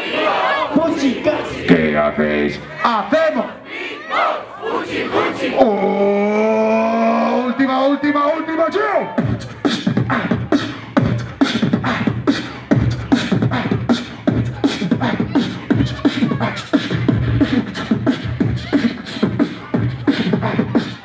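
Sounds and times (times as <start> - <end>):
beatboxing through speakers: 9.1 - 21.0.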